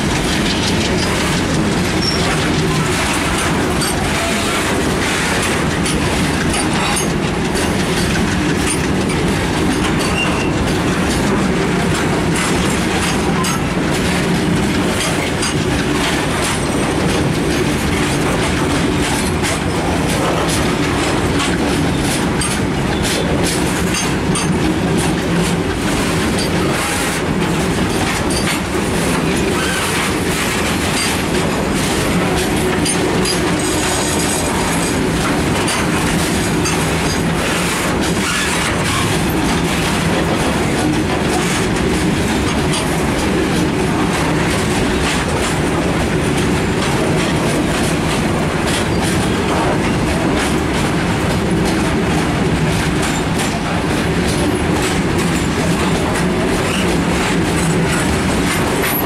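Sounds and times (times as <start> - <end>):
freight train rumbling past: 0.0 - 59.0
wheels clicking over rail joints: 0.0 - 59.0.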